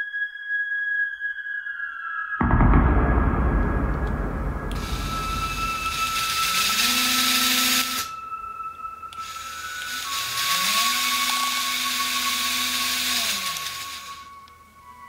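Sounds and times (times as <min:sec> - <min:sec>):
toy motors whirring: 0:09.2 - 0:14.2.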